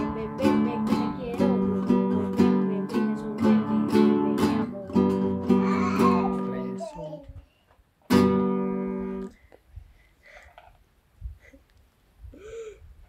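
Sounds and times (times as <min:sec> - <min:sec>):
acoustic guitar strumming chords: 0:00.0 - 0:06.8, 0:08.1 - 0:09.3.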